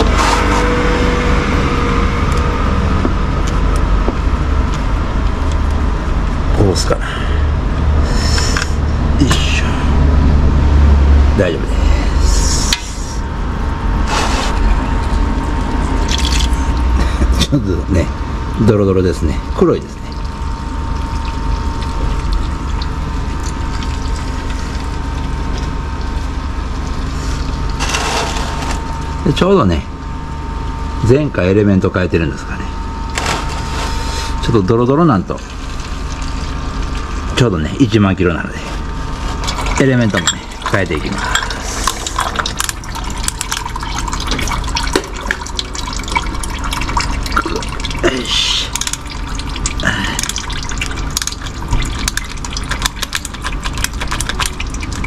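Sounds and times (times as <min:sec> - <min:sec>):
steady mechanical hum: 0:00.0 - 0:55.0
oil draining in a thin stream: 0:13.1 - 0:31.0, 0:38.6 - 0:55.0.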